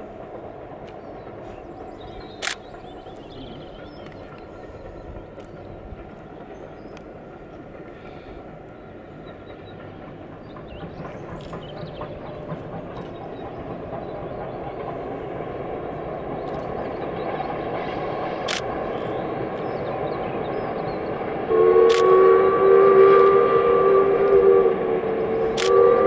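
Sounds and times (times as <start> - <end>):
steam locomotive running: 0.0 - 26.0
sharp clicks: 2.4 - 2.7, 21.9 - 22.1, 25.5 - 25.8
two-note train whistle: 21.5 - 26.0.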